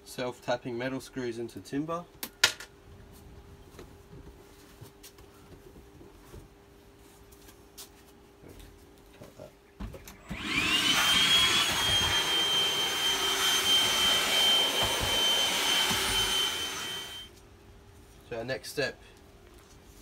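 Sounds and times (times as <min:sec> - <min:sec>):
handheld vacuum motor whine: 0:10.1 - 0:17.3.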